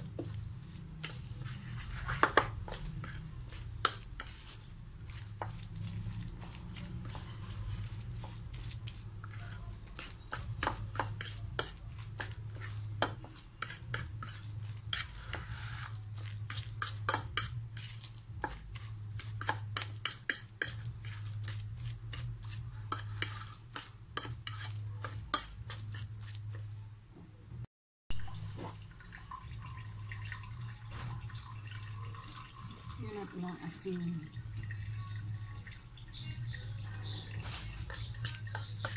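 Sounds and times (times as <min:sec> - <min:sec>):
fork scraping ceramic plate: 0:00.1 - 0:26.8, 0:36.9 - 0:38.9.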